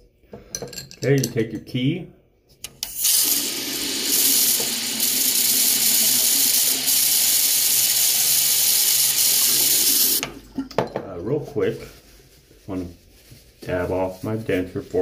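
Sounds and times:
tap water running into sink: 0:03.0 - 0:10.4.

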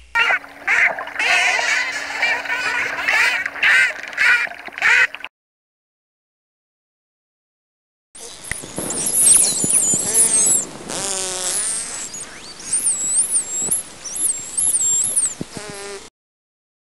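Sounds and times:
dolphin whistles: 0:00.0 - 0:05.1, 0:08.2 - 0:15.6
dolphin buzzy squawks: 0:00.0 - 0:05.3, 0:08.2 - 0:16.0
dolphin clicks: 0:00.2 - 0:05.3.

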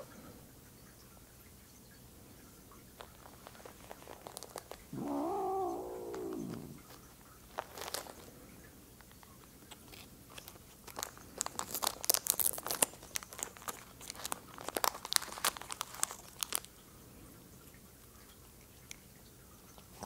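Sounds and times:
foil wrapper crinkling: 0:03.0 - 0:05.3, 0:06.0 - 0:08.3, 0:09.1 - 0:16.7.

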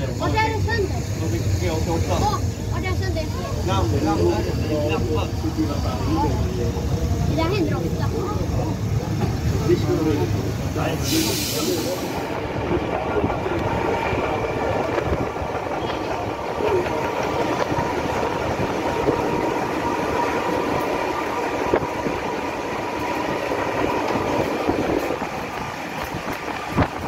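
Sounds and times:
electric train running with whine: 0:00.0 - 0:27.0
rail clicks: 0:08.6 - 0:27.0.

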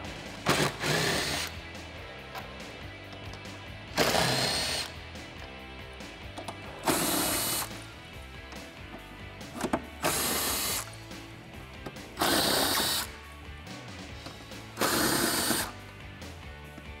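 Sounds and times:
background music: 0:00.0 - 0:17.0
cordless driver spinning bolts: 0:00.4 - 0:01.6, 0:03.1 - 0:05.0, 0:06.3 - 0:07.8, 0:09.6 - 0:11.0, 0:11.9 - 0:13.1, 0:14.2 - 0:15.8.

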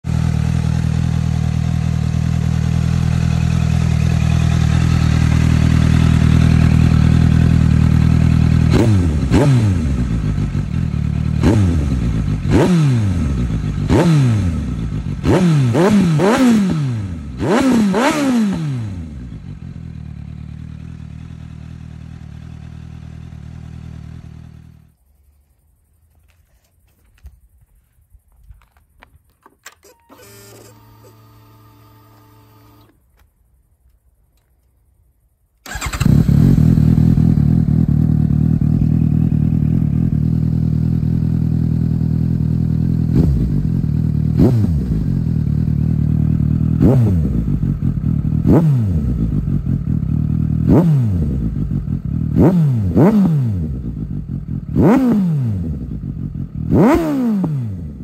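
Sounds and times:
motorcycle engine revving: 0:00.0 - 0:25.0, 0:35.6 - 0:58.0
motorcycle engine idling: 0:00.1 - 0:16.4, 0:18.8 - 0:25.0, 0:35.7 - 0:53.0, 0:53.6 - 0:55.0, 0:55.6 - 0:57.0.

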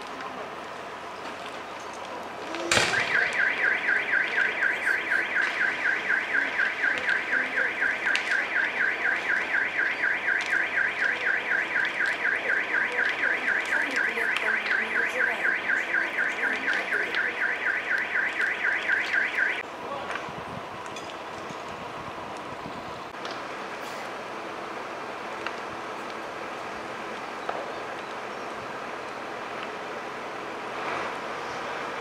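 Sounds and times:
fire crackling: 0:00.0 - 0:32.0
car alarm pulsing tone: 0:02.8 - 0:19.6.

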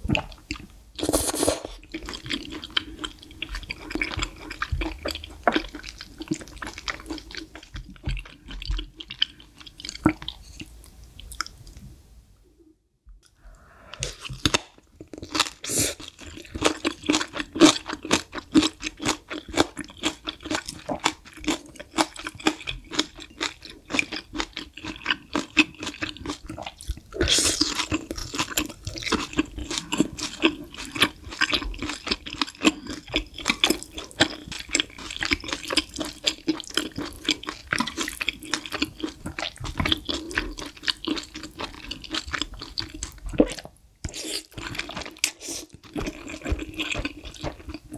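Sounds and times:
chewing and mouth smacks: 0:14.0 - 0:47.9.

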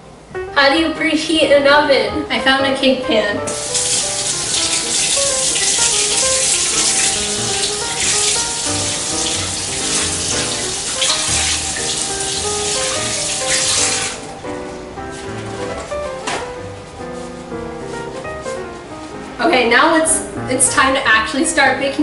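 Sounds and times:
background music: 0:00.0 - 0:22.0
water running from tap: 0:03.5 - 0:14.4.

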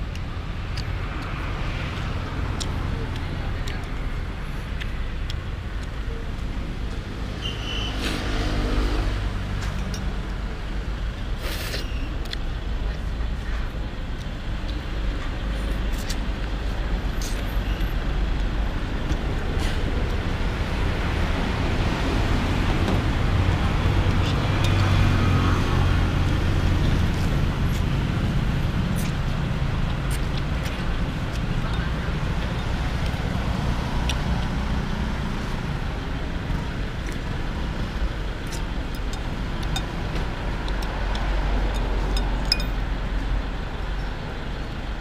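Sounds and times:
road traffic rumbling: 0:00.0 - 0:45.0
spoon and chopsticks clinking bowl: 0:41.7 - 0:42.8.

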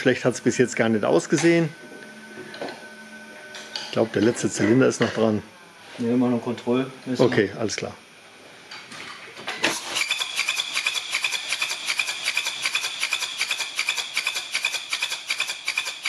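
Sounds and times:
diesel engine cranking on starter: 0:09.6 - 0:16.0.

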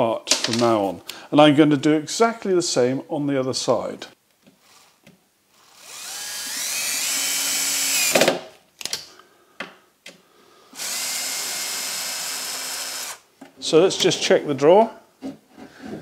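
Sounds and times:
cordless drill whining: 0:04.6 - 0:05.0, 0:05.6 - 0:08.3, 0:10.8 - 0:13.2.

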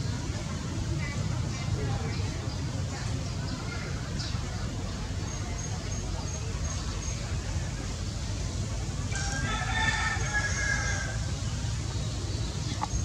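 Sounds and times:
rooster crowing: 0:09.2 - 0:11.2.

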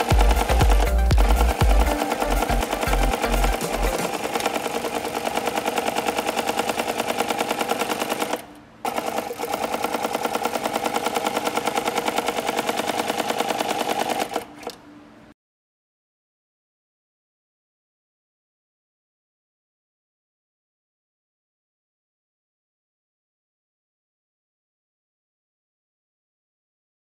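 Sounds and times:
sewing machine stitching leather: 0:00.0 - 0:14.8.

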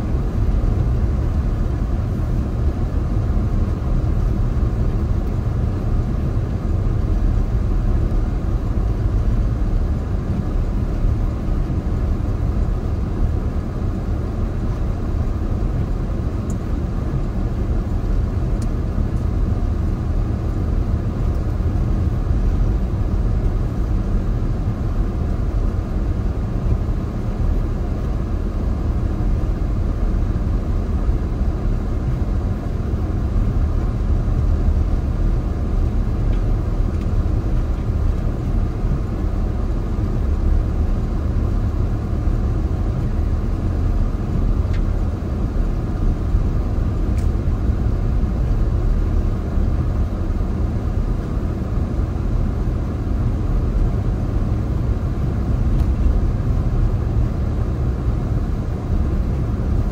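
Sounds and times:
road and engine noise in car: 0:00.0 - 0:59.9.

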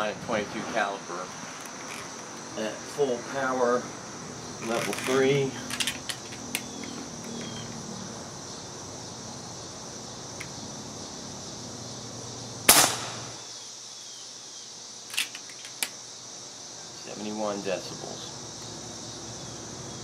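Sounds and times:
high insect buzz: 0:00.0 - 0:20.0
air rifle shot crack: 0:12.7 - 0:13.4.

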